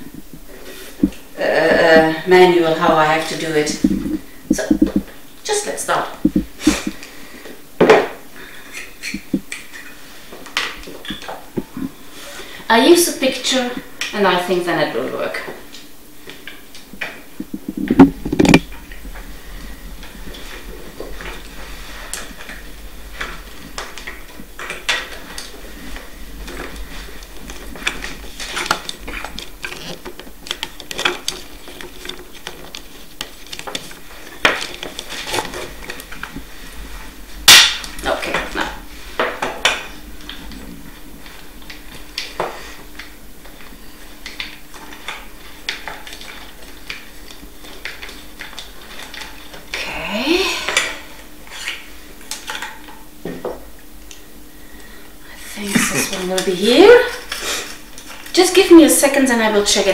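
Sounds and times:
plastic parts clicking and rattling: 23.2 - 36.4.

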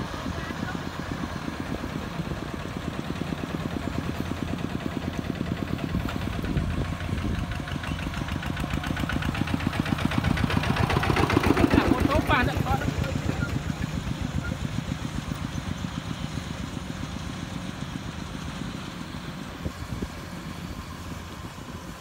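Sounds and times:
diesel engine pulsing hum: 0.0 - 22.0.

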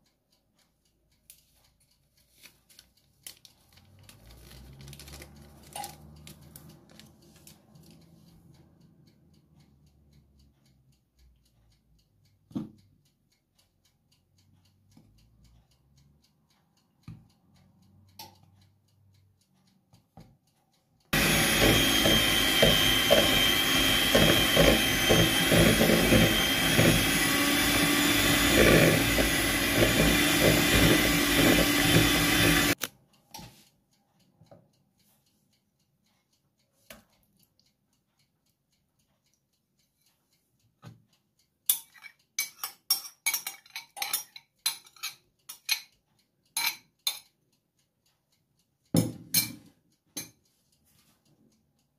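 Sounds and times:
faint clicks and taps: 0.0 - 51.9
electric hand mixer running: 21.2 - 32.8.

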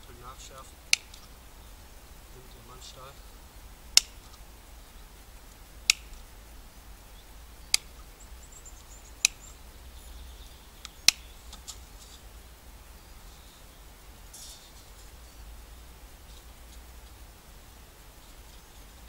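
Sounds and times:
shears snipping wire: 0.9 - 1.3, 4.0 - 4.4, 5.8 - 6.3.

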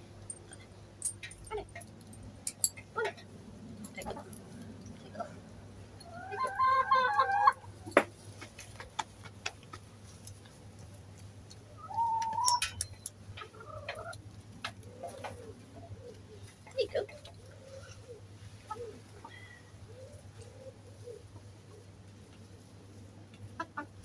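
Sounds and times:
hens clucking: 6.0 - 10.2, 11.5 - 12.6, 13.3 - 24.0.

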